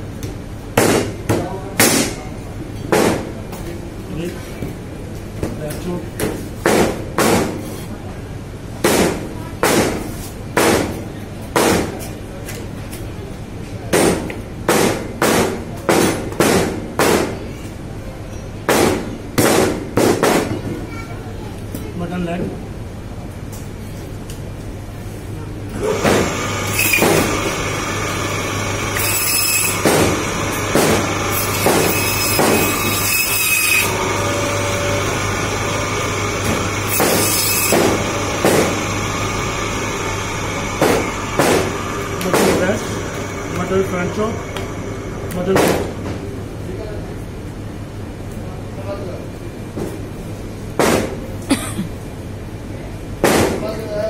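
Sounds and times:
meat cleaver chopping: 0:00.8 - 0:02.2, 0:06.2 - 0:07.6, 0:25.8 - 0:43.7
band saw humming: 0:25.8 - 0:46.0
saw cutting through bone: 0:28.6 - 0:38.9.

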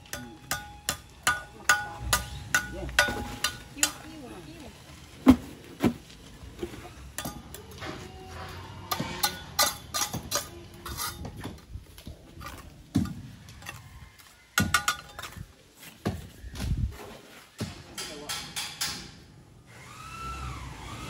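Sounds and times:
blocks and tools knocking: 0:00.1 - 0:04.0, 0:14.6 - 0:15.4
trowel scraping mortar: 0:08.4 - 0:11.4.

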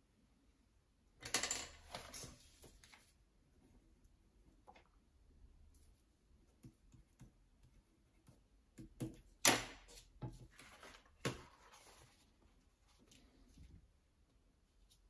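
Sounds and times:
paper rustling: 0:10.5 - 0:13.4.

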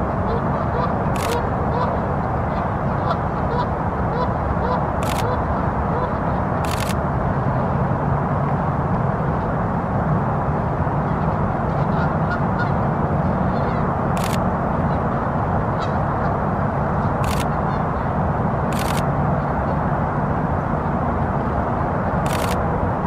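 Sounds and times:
outdoor background noise: 0:00.0 - 0:23.0
camera shutter clicks: 0:01.1 - 0:01.4, 0:05.0 - 0:05.3, 0:06.6 - 0:07.0, 0:14.2 - 0:14.4, 0:17.2 - 0:17.5, 0:18.7 - 0:19.1, 0:22.2 - 0:22.6.

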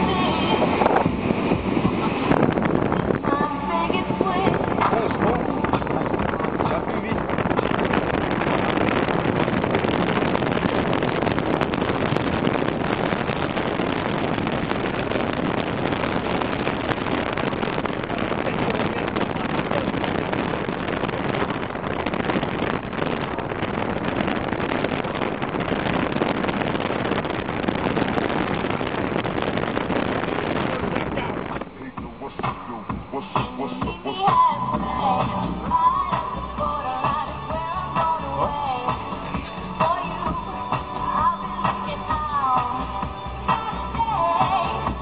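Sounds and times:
streetcar rushing: 0:00.0 - 0:09.8
wind buffeting microphone: 0:00.0 - 0:33.1, 0:33.8 - 0:45.0.

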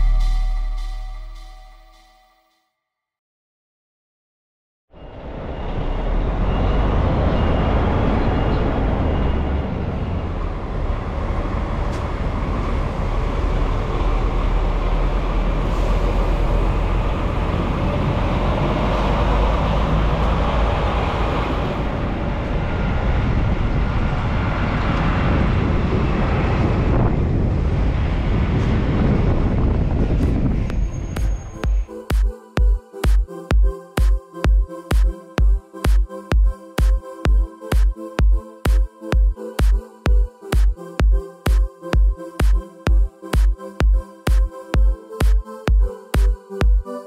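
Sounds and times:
truck diesel engine rumbling: 0:05.2 - 0:25.6.

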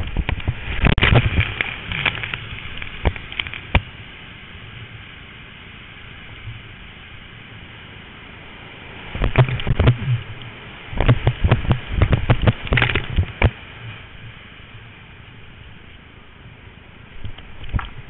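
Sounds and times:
water splashing against boat: 0:00.0 - 0:04.1, 0:07.8 - 0:16.0.

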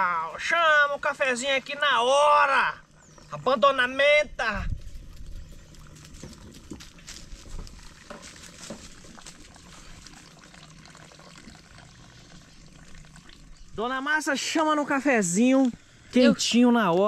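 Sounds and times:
coffee trickling through filter: 0:04.7 - 0:17.0
hot water pouring from kettle: 0:07.5 - 0:13.8.

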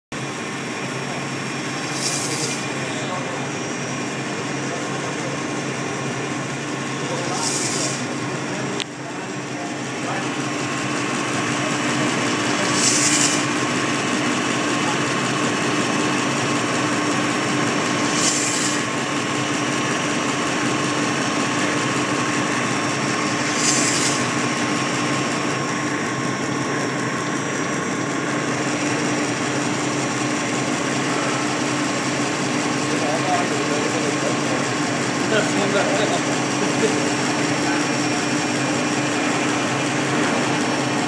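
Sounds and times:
machine humming: 0:00.2 - 0:41.0
short hisses: 0:01.7 - 0:02.8, 0:07.2 - 0:08.1, 0:12.6 - 0:13.6, 0:18.0 - 0:18.9, 0:23.3 - 0:24.4.

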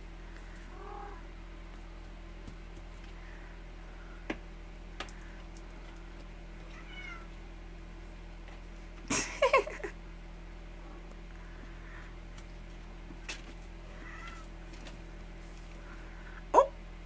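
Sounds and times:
kitten mewing: 0:00.7 - 0:01.3
kitten meowing loudly: 0:06.7 - 0:07.3.

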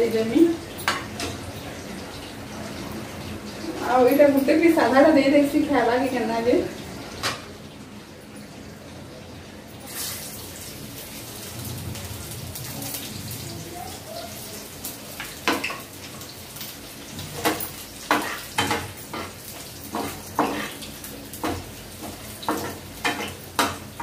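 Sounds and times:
garlic sizzling in hot oil: 0:00.0 - 0:08.2, 0:09.8 - 0:24.0
metal utensils clinking on pan: 0:00.7 - 0:01.4, 0:15.2 - 0:24.0.

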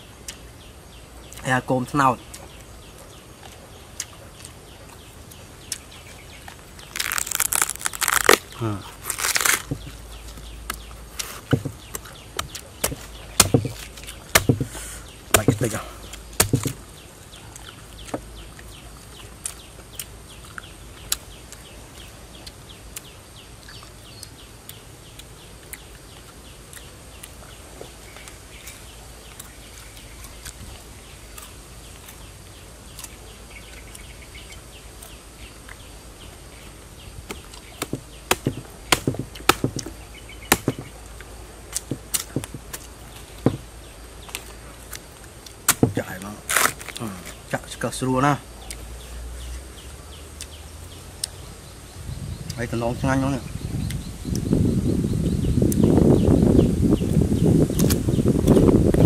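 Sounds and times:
faint crunching while eating: 0:02.2 - 0:35.9, 0:44.2 - 0:47.8
knife chopping into wood: 0:09.6 - 0:09.9, 0:10.7 - 0:16.8, 0:37.3 - 0:40.9, 0:41.7 - 0:42.8, 0:43.4 - 0:43.6, 0:45.7 - 0:46.8.

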